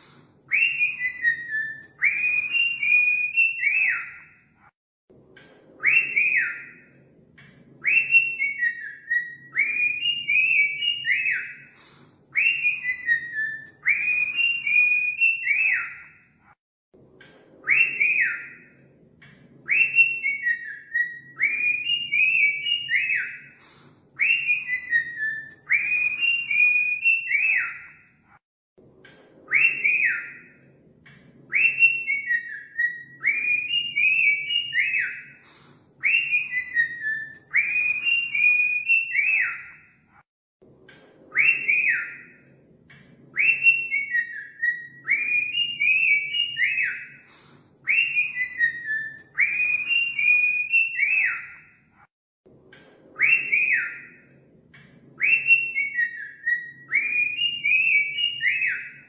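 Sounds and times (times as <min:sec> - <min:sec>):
cockatiel whistling: 0:00.5 - 0:04.4, 0:07.8 - 0:16.2, 0:19.7 - 0:28.0, 0:31.5 - 0:39.9, 0:41.4 - 0:42.4, 0:43.4 - 0:51.7, 0:53.2 - 0:54.2, 0:55.2 - 0:59.0.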